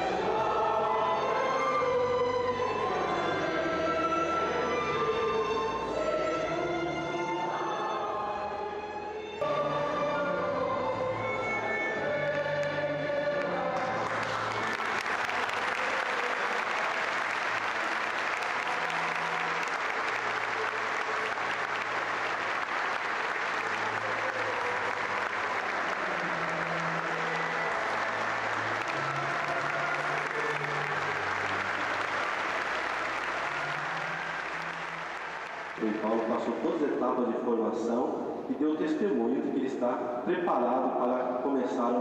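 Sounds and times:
choir singing: 0.0s - 36.9s
congregation applauding: 12.3s - 37.0s.

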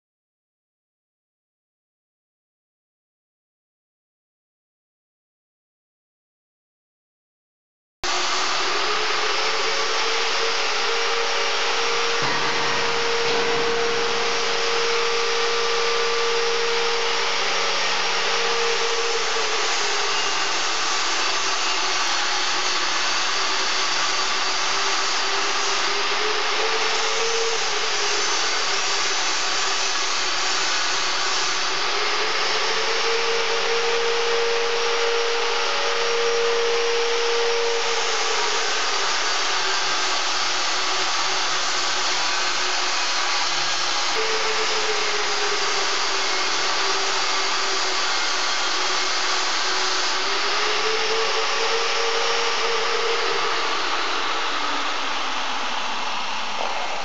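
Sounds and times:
angle grinder grinding steel: 8.1s - 57.0s.

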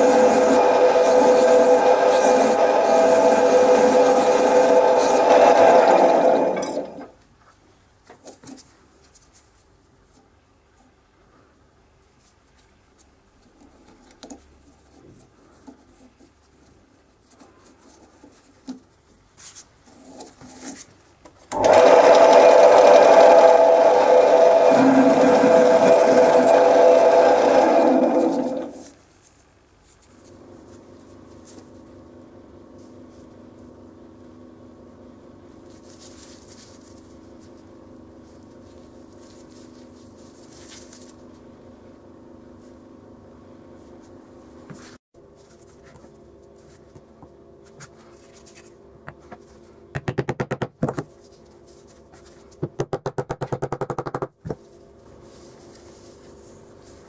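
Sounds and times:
drill press motor running: 0.0s - 7.1s, 21.5s - 28.8s.

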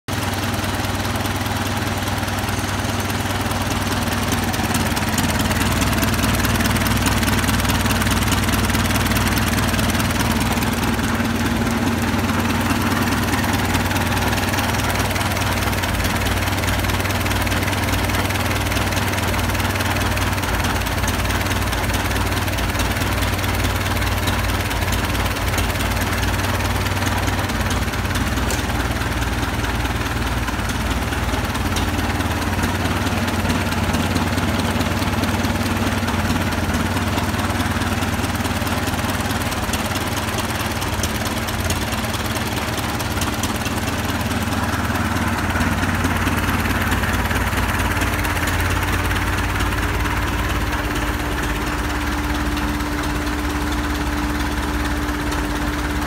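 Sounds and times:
truck engine idling: 0.1s - 56.0s.

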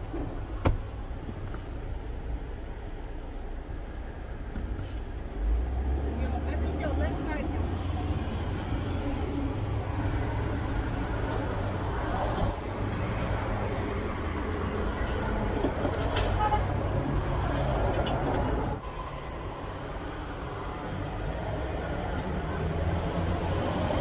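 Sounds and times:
low rumble of vehicle engines: 0.0s - 24.0s.

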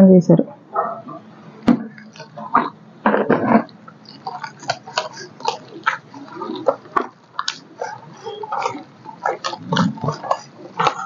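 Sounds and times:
hand squelching batter: 3.7s - 11.0s.

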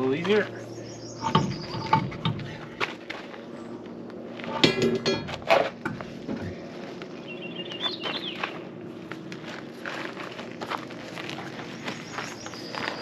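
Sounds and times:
metallic wheel scraping: 1.2s - 2.7s, 4.4s - 6.1s.

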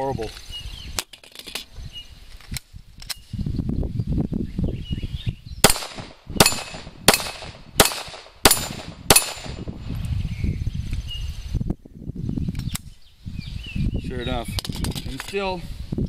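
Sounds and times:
pistol shots: 5.6s - 9.7s.

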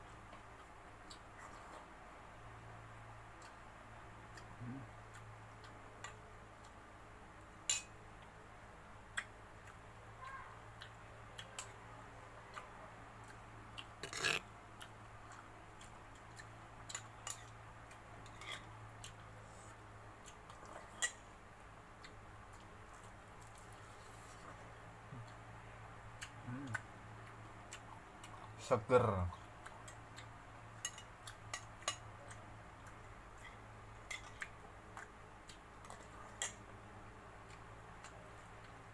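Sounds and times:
mouth smacks and chewing: 26.2s - 28.6s, 31.2s - 36.6s.

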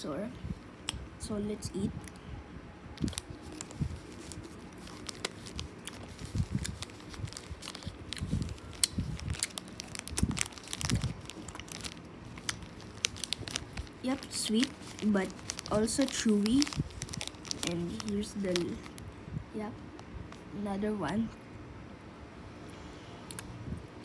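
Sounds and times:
mouth clicks chewing candy: 5.2s - 11.8s, 23.3s - 23.5s.

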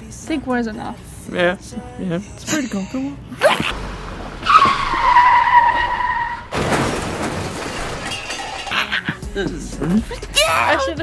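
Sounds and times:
tyres squealing: 3.4s - 6.6s.

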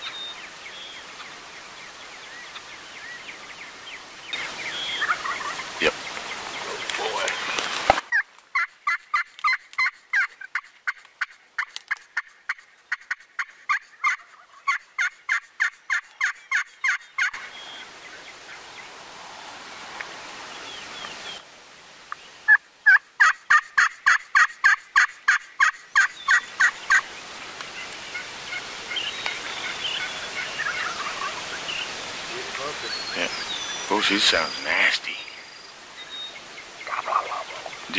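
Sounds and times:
turkey hen yelping: 4.6s - 5.8s, 8.1s - 17.4s, 22.5s - 27.0s, 28.1s - 31.6s, 36.8s - 37.9s.

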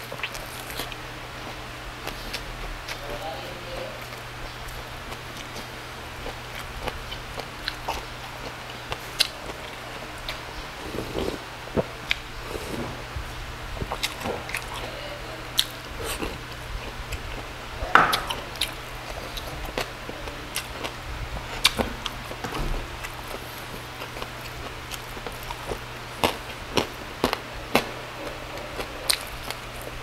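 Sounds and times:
person chewing crunchy food: 0.0s - 3.2s, 4.0s - 13.2s, 13.8s - 30.0s
faint steady hum: 0.0s - 30.0s
lip smacks: 6.3s - 12.6s.

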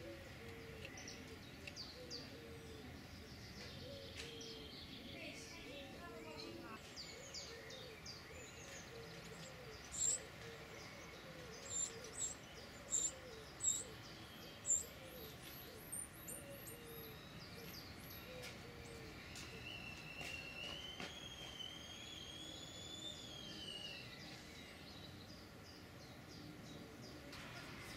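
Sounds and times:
wrens chirping: 0.0s - 27.9s.

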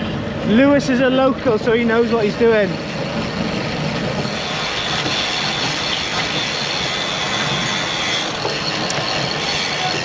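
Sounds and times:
bicycle road noise: 0.0s - 10.0s
faint high whine: 0.0s - 10.0s
rushing wind: 0.0s - 10.0s.

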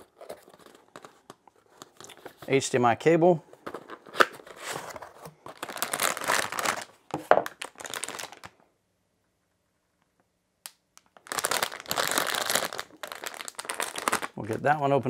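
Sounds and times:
plastic packaging crinkling: 0.0s - 2.6s, 3.6s - 8.6s, 11.0s - 15.0s.

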